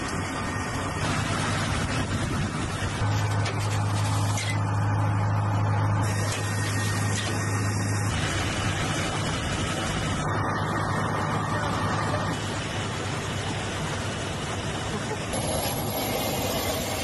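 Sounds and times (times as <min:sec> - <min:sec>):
helicopter turbine engines: 0:00.0 - 0:03.4, 0:04.8 - 0:17.0.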